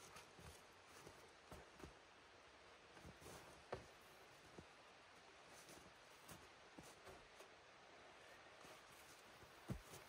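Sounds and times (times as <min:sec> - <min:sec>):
faint crackles in snow: 0:00.0 - 0:02.1, 0:02.9 - 0:10.0
soft knocks of handling a log: 0:03.0 - 0:04.7, 0:09.4 - 0:10.0.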